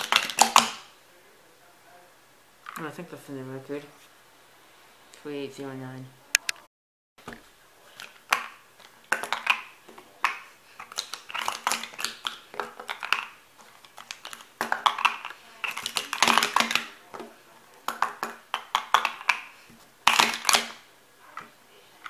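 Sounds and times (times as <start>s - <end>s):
plastic cups clacking and sliding: 0.0s - 0.9s, 7.8s - 21.6s.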